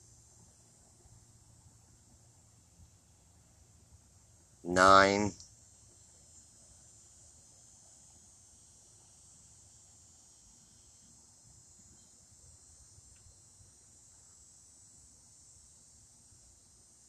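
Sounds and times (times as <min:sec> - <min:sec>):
high-pitched insect chirring: 0:04.7 - 0:15.8.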